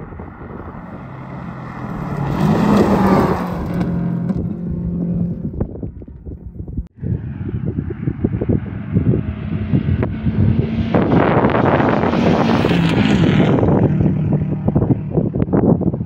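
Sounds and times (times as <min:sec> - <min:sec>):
wind buffeting microphone: 0:00.0 - 0:16.0
rally car engine revving past: 0:00.7 - 0:05.5, 0:07.3 - 0:15.2.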